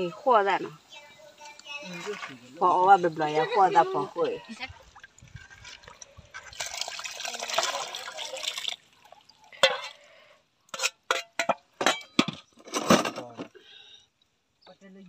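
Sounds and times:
liquid pouring into metal pot: 4.8s - 10.1s
metal ladle clinking on bowl: 9.6s - 10.0s, 10.7s - 12.2s.

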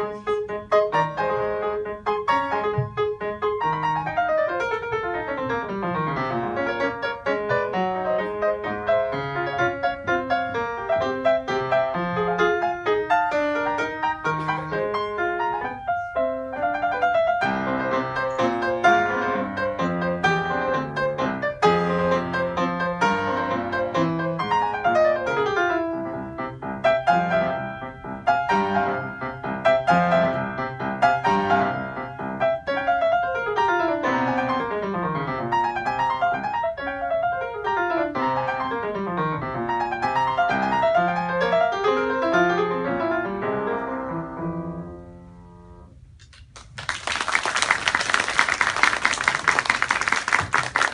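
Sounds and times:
solo piano piece: 0.0s - 46.1s
audience applause: 46.5s - 50.9s.

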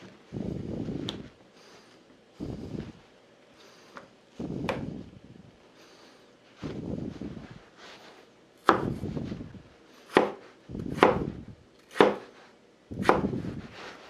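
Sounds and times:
cleaver chopping on wooden board: 11.9s - 12.2s.

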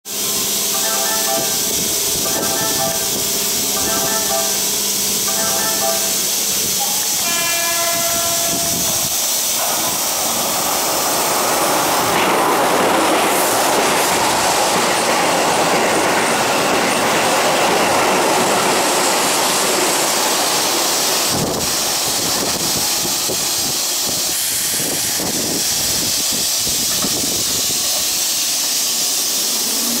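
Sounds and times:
train horn tone: 0.8s - 9.1s
train wheels clattering over rails: 8.0s - 30.0s.

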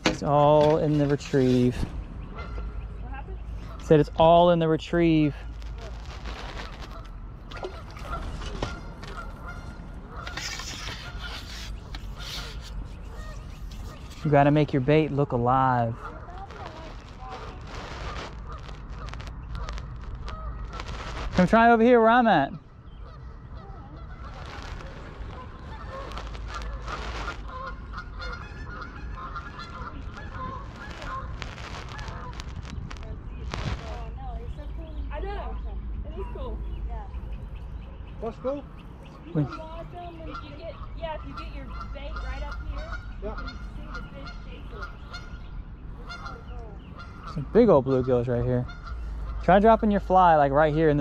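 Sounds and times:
geese honking: 0.0s - 36.6s, 38.0s - 51.0s
brief rustle: 10.2s - 14.3s.

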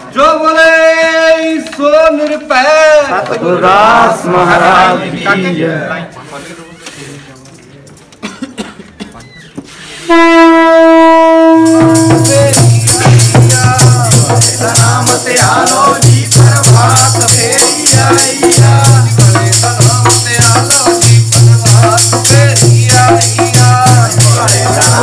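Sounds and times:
group singing a hymn: 2.6s - 6.1s, 11.6s - 25.0s
long held note: 10.1s - 12.6s
hand percussion beat: 11.1s - 25.0s.

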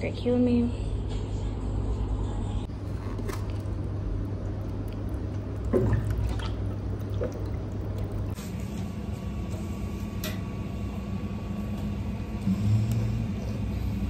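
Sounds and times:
steady low hum: 0.0s - 14.0s
water pouring into plastic cup: 3.4s - 8.4s.

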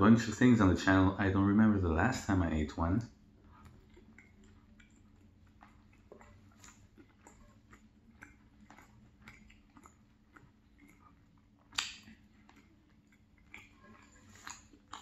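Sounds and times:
faint chewing: 0.2s - 15.0s
mouth clicks: 3.6s - 15.0s.

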